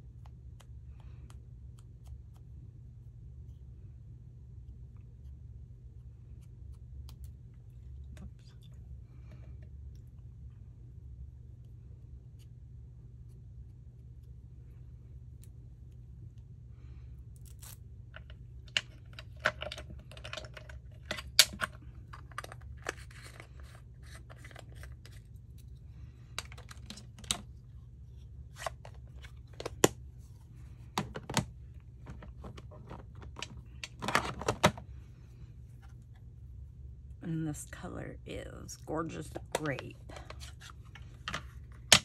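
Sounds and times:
steady low hum: 0.0s - 42.0s
paper supplies clicking and rustling: 31.0s - 34.8s.

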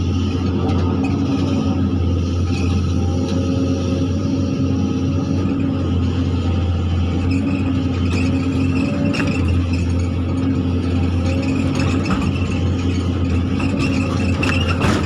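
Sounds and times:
excavator diesel engine running: 0.0s - 15.0s
high hydraulic whine: 0.0s - 15.0s.

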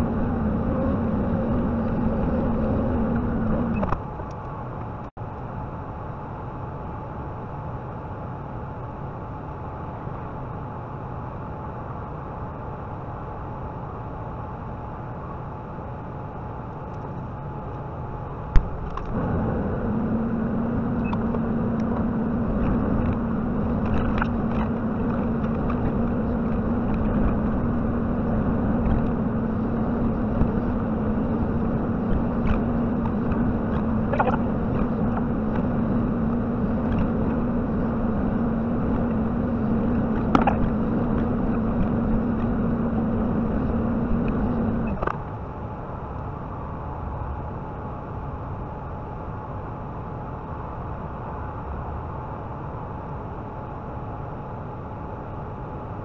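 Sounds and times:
excavator diesel engine running: 0.0s - 4.0s, 18.6s - 45.1s.

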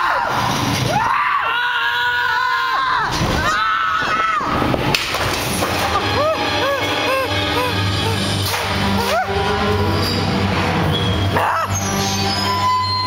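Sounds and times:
coaster car rumbling on track: 0.0s - 13.0s
short rising and falling cries: 5.8s - 13.0s.

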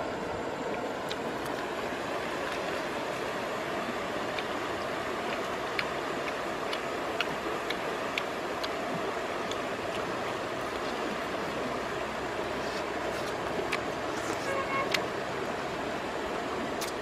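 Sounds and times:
stream running over stones: 0.0s - 17.0s
light clicks of eating: 4.3s - 11.3s.

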